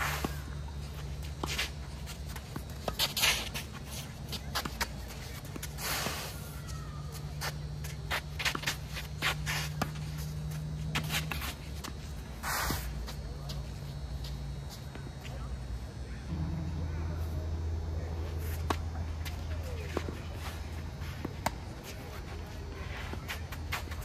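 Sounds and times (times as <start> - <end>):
shoes sliding on clay: 0.0 - 6.5, 7.1 - 14.9
steady low hum: 0.0 - 24.0.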